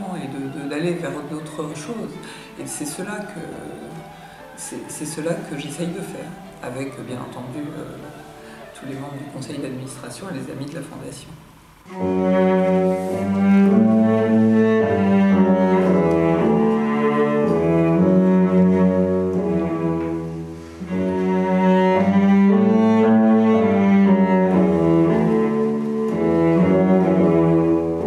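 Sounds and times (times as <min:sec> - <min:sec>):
slow instrumental music: 0:11.6 - 0:28.0.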